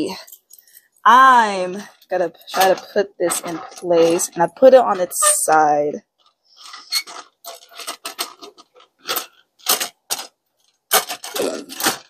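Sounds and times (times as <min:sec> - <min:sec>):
plastic parts clicking: 0:06.2 - 0:12.0.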